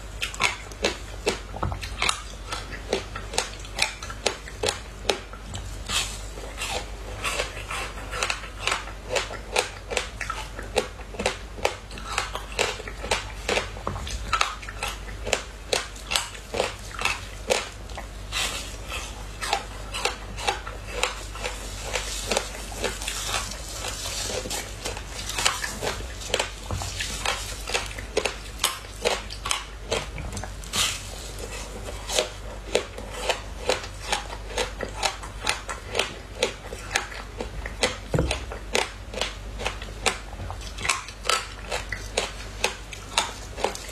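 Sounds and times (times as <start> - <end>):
frozen fruit sheet cracking: 18.6 - 36.5.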